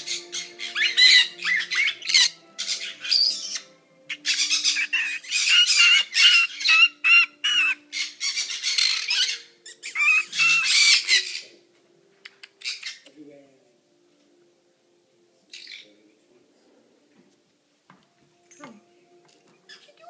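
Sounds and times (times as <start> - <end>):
parrot warbling calls: 0.0 - 11.6.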